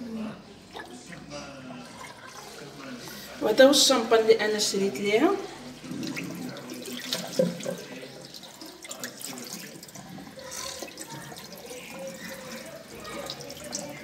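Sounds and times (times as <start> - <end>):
water running from tap: 0.7 - 14.0
small splashes and drips: 5.6 - 14.0.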